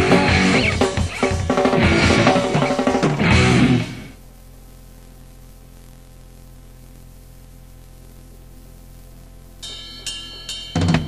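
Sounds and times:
punk rock drums and guitars: 0:00.0 - 0:04.2, 0:09.7 - 0:11.0
low electrical hum: 0:03.2 - 0:10.8.

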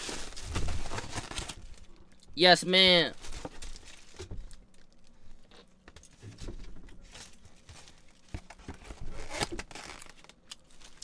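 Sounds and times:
foam container rustling and crinkling: 0:00.0 - 0:01.8, 0:03.1 - 0:04.6.

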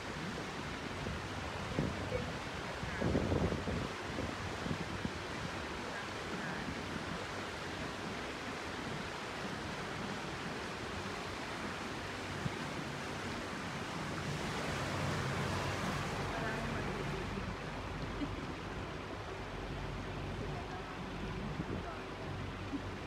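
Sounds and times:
water washing past boat: 0:00.0 - 0:23.0
wind on microphone: 0:00.0 - 0:23.0.

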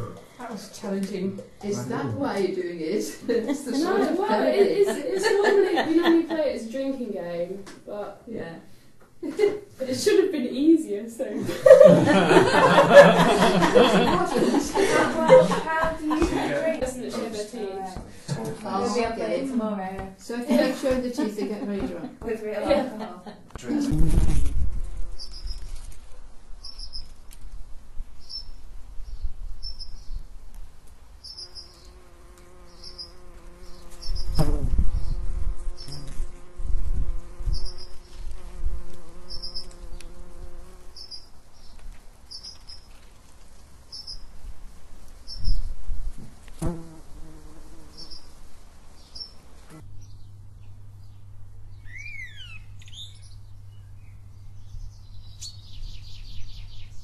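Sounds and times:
sweeping bird calls: 0:25.2 - 0:25.8, 0:26.6 - 0:27.1, 0:31.2 - 0:32.0, 0:32.6 - 0:34.4, 0:40.9 - 0:42.9, 0:43.9 - 0:44.3, 0:45.3 - 0:45.7, 0:47.9 - 0:48.4, 0:49.0 - 0:49.4, 0:51.0 - 0:57.0
steady low hum: 0:47.2 - 0:57.0.

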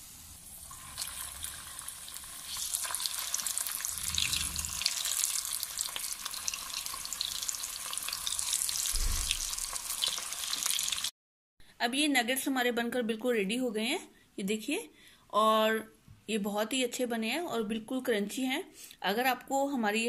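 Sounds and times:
food sizzling in hot oil: 0:00.0 - 0:11.1.

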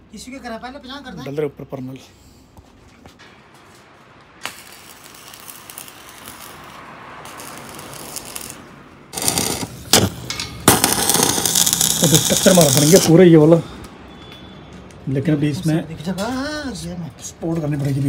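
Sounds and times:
welding arc snaps: 0:04.2 - 0:13.2
welding arc hissing: 0:04.4 - 0:13.2.

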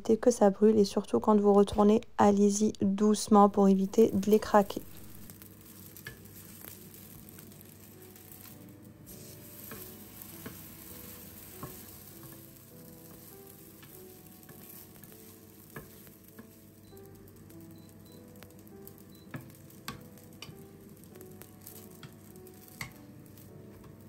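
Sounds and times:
flatbread sizzling in a pan: 0:04.3 - 0:24.0
wooden spatula clicks and taps: 0:19.2 - 0:20.7, 0:21.7 - 0:23.0.

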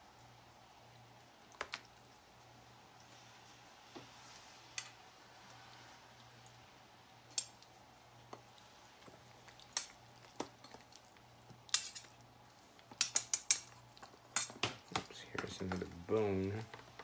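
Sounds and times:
faint steady hum: 0:00.0 - 0:17.0
metal utensils clinking: 0:11.7 - 0:12.2, 0:13.0 - 0:15.6.

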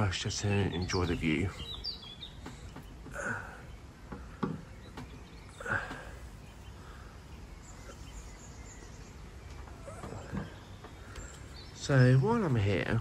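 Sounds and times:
bird chirps: 0:00.0 - 0:13.0.

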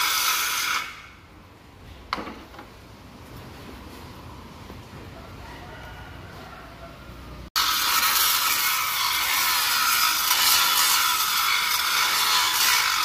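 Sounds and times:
angle grinder grinding steel: 0:00.0 - 0:01.2, 0:07.6 - 0:13.0.

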